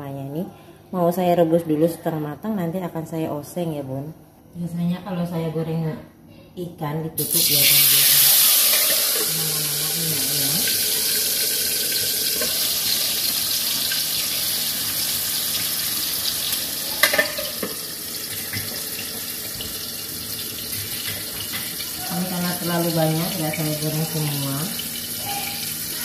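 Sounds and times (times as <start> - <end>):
fish sizzling in hot oil: 7.2 - 26.0.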